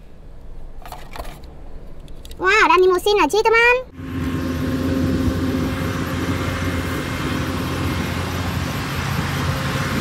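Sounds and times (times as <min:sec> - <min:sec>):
car engine idling: 0:03.9 - 0:10.0.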